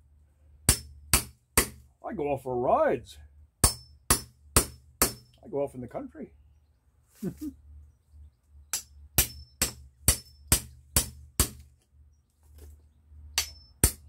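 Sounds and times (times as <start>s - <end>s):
hatchet striking metal blade in wood: 0.7s - 1.8s, 3.6s - 5.4s, 8.7s - 11.7s, 13.4s - 14.0s.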